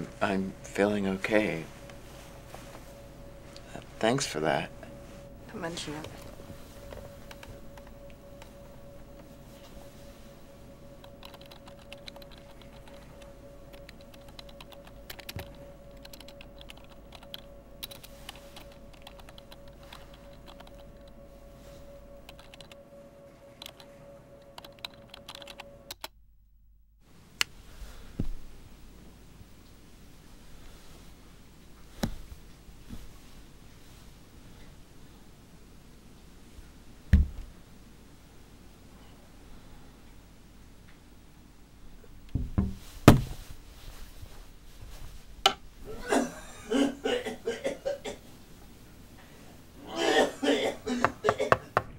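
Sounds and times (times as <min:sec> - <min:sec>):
faint hum: 0:00.0 - 0:51.9
keyboard typing: 0:05.9 - 0:21.2, 0:22.2 - 0:26.2
low thump: 0:37.1 - 0:37.5.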